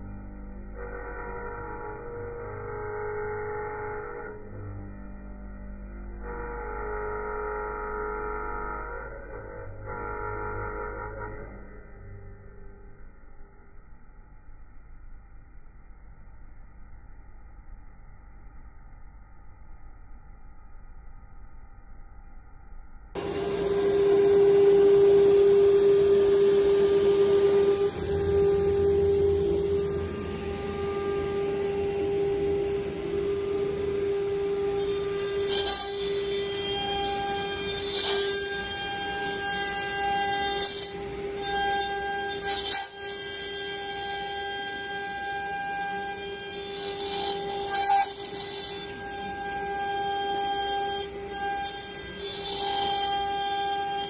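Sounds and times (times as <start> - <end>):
router bit cutting wood: 23.2 - 54.0
router spindle whine: 23.2 - 54.0.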